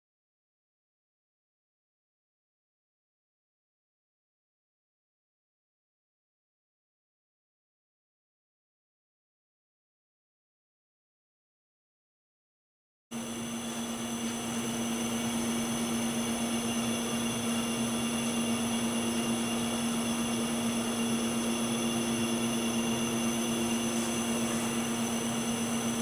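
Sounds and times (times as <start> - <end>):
machine hum with low tone: 13.1 - 26.0
faint high whines: 13.2 - 26.0.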